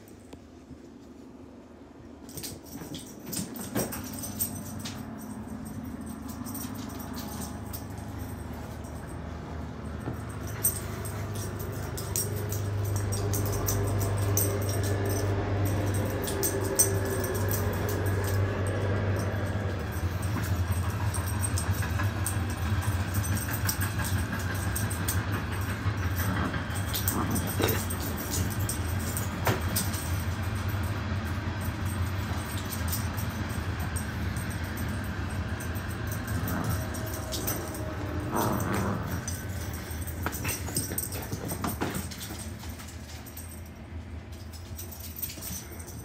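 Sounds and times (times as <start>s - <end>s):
puppy growling: 10.3s - 30.2s, 35.4s - 42.0s
rope toy clicks and rustles: 19.8s - 30.3s.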